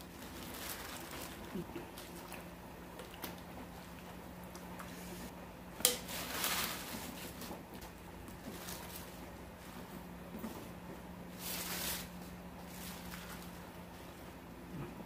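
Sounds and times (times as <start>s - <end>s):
cabbage leaves rustling: 0.0s - 2.3s, 6.0s - 10.1s, 11.3s - 14.3s
low steady hum: 0.0s - 15.0s.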